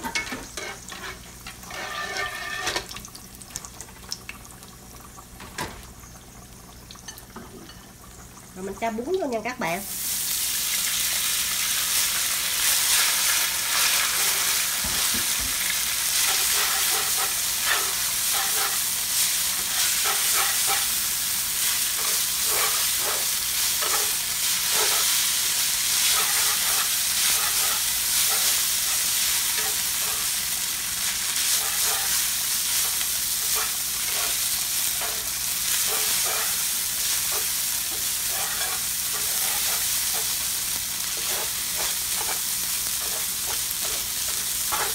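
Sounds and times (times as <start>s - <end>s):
noodles sizzling in oil: 0.0s - 44.9s
chopsticks scraping pan: 0.1s - 2.9s, 16.2s - 18.9s, 19.5s - 20.9s, 22.0s - 25.2s, 26.0s - 30.3s, 31.5s - 32.2s, 32.8s - 34.4s, 35.0s - 36.6s, 37.3s - 40.4s, 41.1s - 44.9s.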